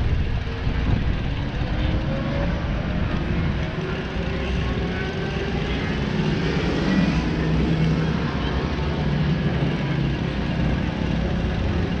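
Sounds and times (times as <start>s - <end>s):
wind on microphone: 0.0s - 3.8s
small motorbike engine running: 0.0s - 12.0s.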